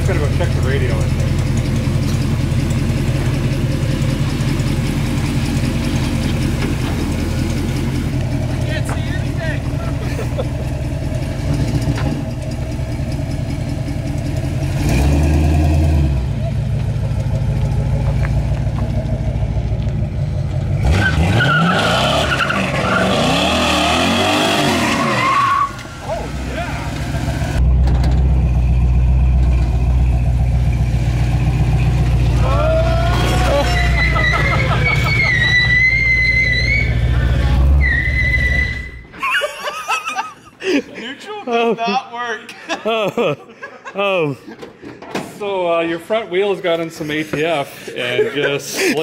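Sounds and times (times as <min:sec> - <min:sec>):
car engine running at low revs: 0:00.0 - 0:21.0
tires squealing: 0:20.8 - 0:27.6, 0:31.1 - 0:39.3.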